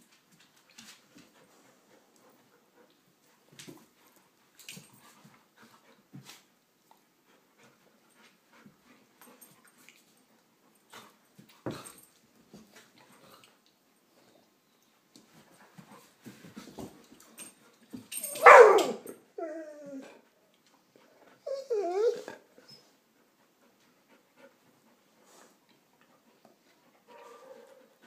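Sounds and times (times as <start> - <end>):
dogs whining with yips: 18.2 - 20.1, 21.4 - 22.9
dog yelping: 18.3 - 19.1.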